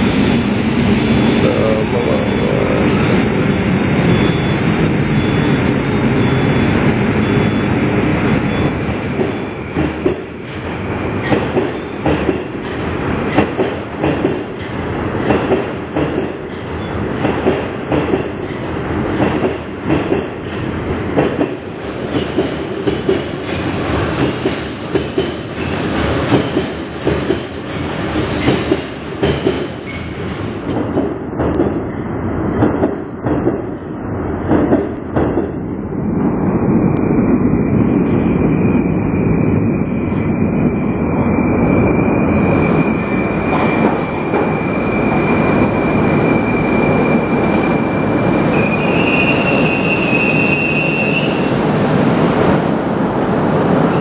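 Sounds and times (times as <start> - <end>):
train rumble: 0.0 - 54.0
train wheels clacking over rail joints: 8.6 - 31.9, 32.5 - 33.9, 34.5 - 35.7.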